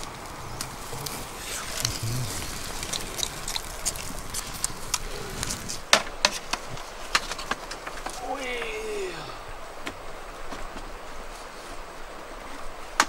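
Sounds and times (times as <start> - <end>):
wood fire crackling: 0.0 - 13.0.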